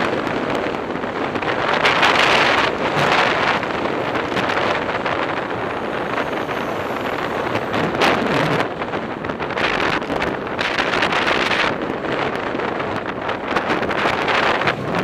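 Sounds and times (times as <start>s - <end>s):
wind rushing over microphone: 0.0s - 15.0s
cars passing: 0.7s - 11.7s.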